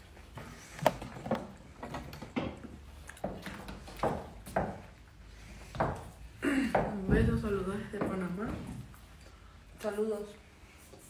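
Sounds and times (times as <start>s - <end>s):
low background noise: 0.0s - 11.0s
light knocks and thuds: 6.8s - 8.8s.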